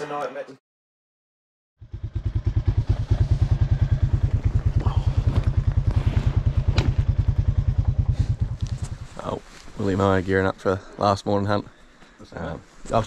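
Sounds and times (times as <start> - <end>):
atv engine idling: 1.8 - 10.2.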